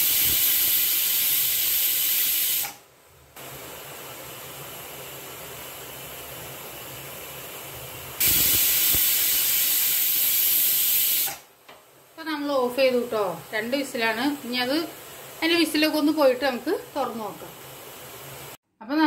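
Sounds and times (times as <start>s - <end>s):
pressure cooker whistling: 0.0s - 2.8s, 8.2s - 11.5s
steam hissing: 0.0s - 2.8s, 3.4s - 11.5s.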